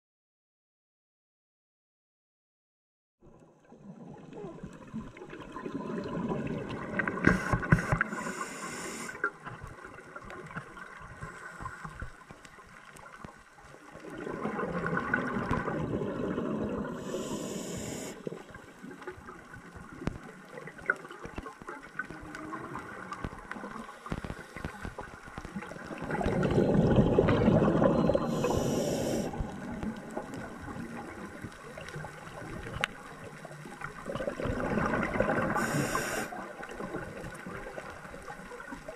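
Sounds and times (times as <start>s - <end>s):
diver exhaling bubbles: 4.4s - 9.2s, 14.0s - 18.5s, 25.7s - 31.1s, 34.1s - 37.2s
regulator hiss: 7.3s - 9.2s, 17.0s - 18.2s, 28.3s - 29.4s, 35.6s - 36.4s.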